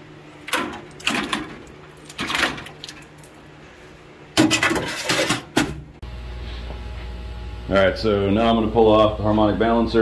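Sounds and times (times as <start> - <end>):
metal parts clattering in steel tank: 4.4 - 5.7
steady low hum: 6.0 - 10.0.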